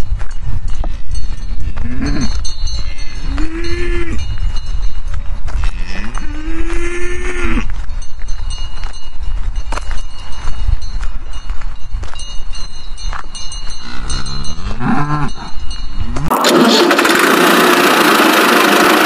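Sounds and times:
cow mooing: 1.8 - 2.4, 5.6 - 7.7, 13.9 - 15.5.

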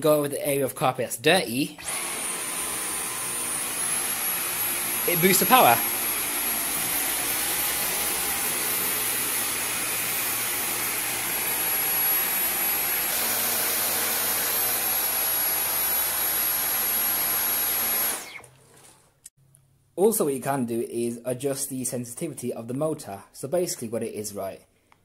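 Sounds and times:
vacuum cleaner motor whine: 1.8 - 18.5.

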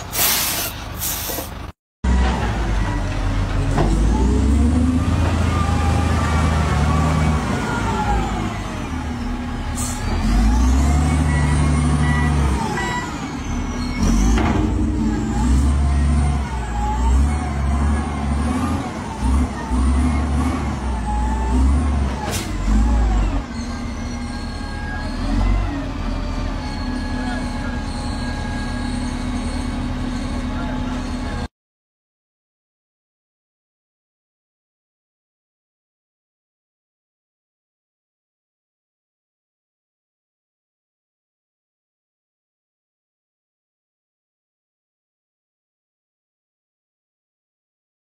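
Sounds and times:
heavy diesel engines under load: 0.0 - 31.5.

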